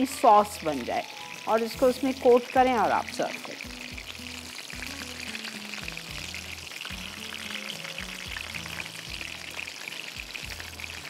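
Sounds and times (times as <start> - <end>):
food sizzling in a pan: 0.0 - 11.0
music with slow bass line: 3.7 - 11.0.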